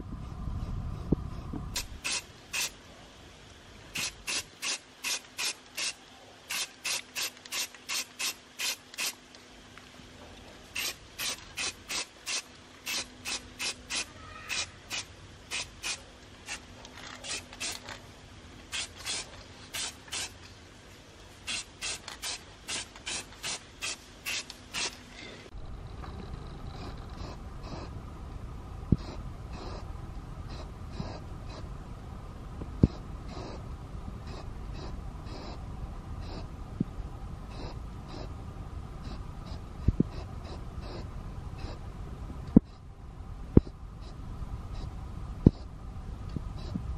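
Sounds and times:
spray can bursts: 1.8 - 2.8, 3.9 - 9.2, 10.7 - 18.0, 18.7 - 20.4, 21.4 - 25.0.

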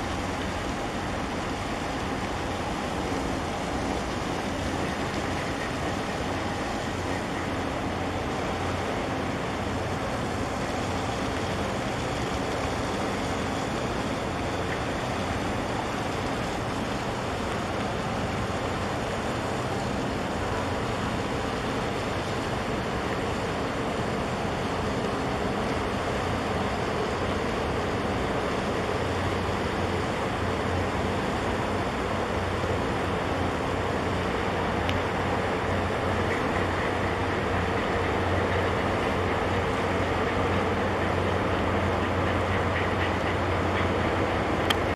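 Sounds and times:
faint hum: 0.0 - 44.9
ship engine low rumble: 0.0 - 44.9.

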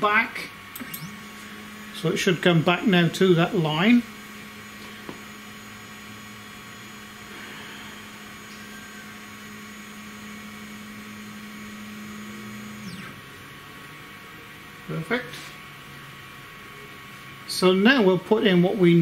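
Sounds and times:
stepper motor whine: 0.6 - 14.8.

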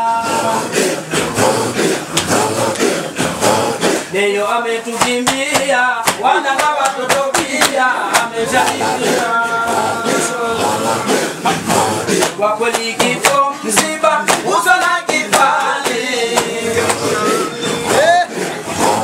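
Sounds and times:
men chanting: 0.0 - 19.0
sharp percussive hits: 5.0 - 8.9, 11.6 - 17.3.

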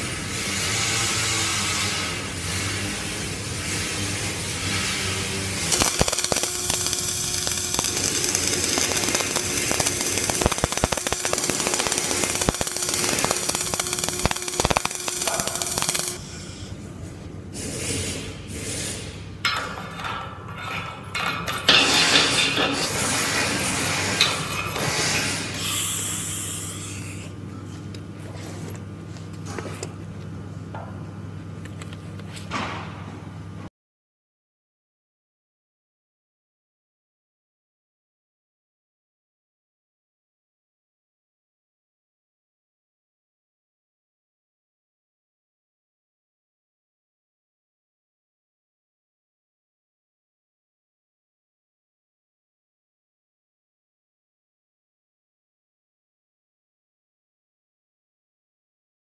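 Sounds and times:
low machinery hum: 2.9 - 21.5, 22.2 - 33.7
arc welding crackling and popping: 3.0 - 16.3.

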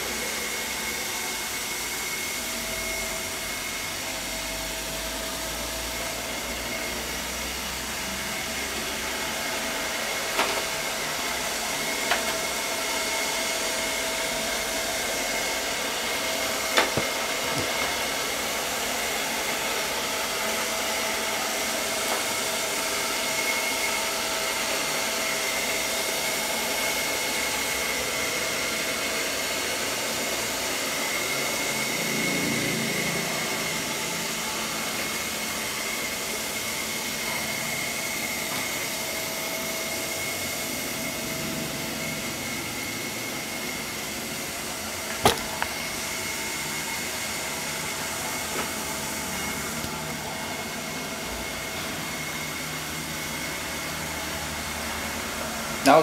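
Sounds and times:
robot vacuum whirring: 6.2 - 27.0.

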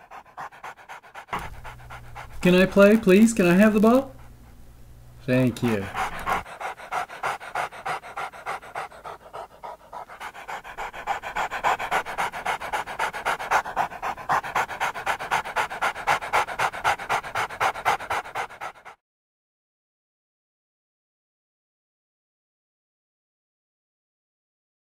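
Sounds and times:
dog panting fast: 0.0 - 19.0.

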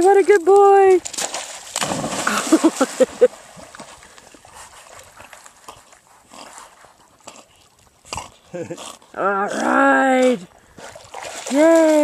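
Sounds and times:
faint water sounds: 0.0 - 12.0
dog splashing into water: 1.0 - 4.0, 10.8 - 12.0.

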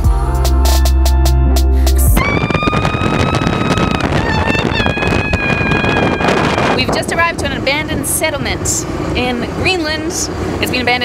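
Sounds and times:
background music with held notes: 0.0 - 2.2
wind buffeting microphone: 2.0 - 11.0.

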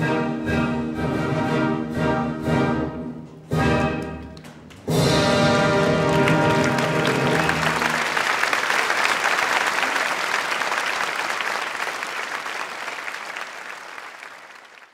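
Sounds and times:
audience applauding: 3.8 - 14.9.

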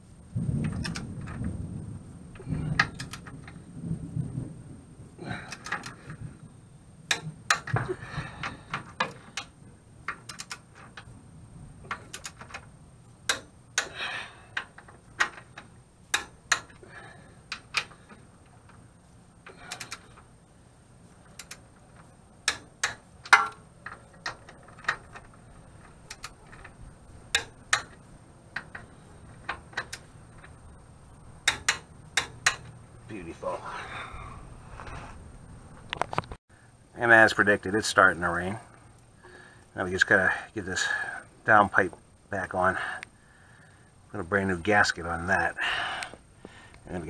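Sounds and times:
socket ratchet clicking: 2.8 - 3.4, 9.0 - 11.0, 11.9 - 12.6, 14.6 - 16.8, 19.5 - 20.2, 21.2 - 21.7, 22.4 - 26.7, 31.4 - 32.8.

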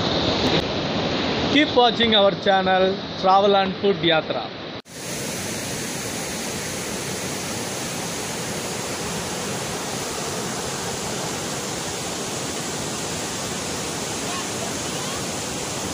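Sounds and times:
waterfall rushing over rock: 4.9 - 15.9.

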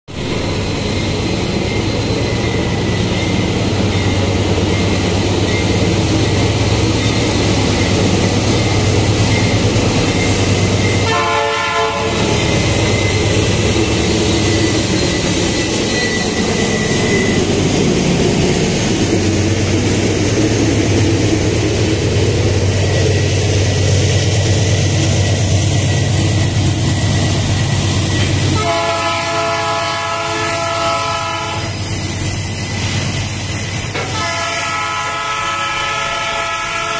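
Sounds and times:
locomotive engine humming: 0.1 - 36.9
locomotive horn blast: 11.0 - 12.4, 28.5 - 31.7, 34.0 - 36.9.

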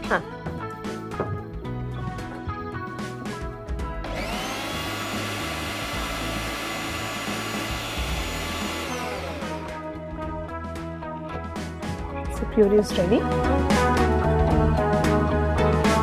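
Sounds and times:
background music: 0.0 - 16.0
mixer grinder running: 4.0 - 9.9.

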